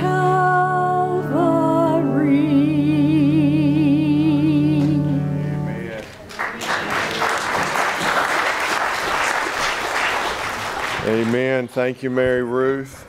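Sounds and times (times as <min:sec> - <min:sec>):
woman singing a hymn: 0:00.0 - 0:05.5
sustained accompaniment chord: 0:00.0 - 0:06.1
congregation applauding: 0:05.9 - 0:11.7.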